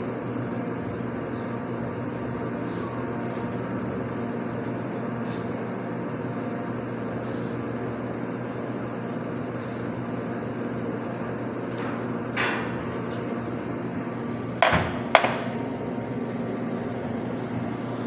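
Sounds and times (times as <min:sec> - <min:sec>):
espresso machine hum: 0:00.0 - 0:18.0
sharp knocks: 0:14.6 - 0:15.5.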